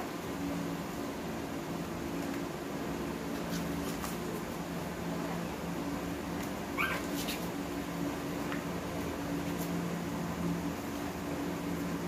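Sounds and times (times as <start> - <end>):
steady low hum: 0.0 - 12.0
puppy squeaking: 6.8 - 7.4.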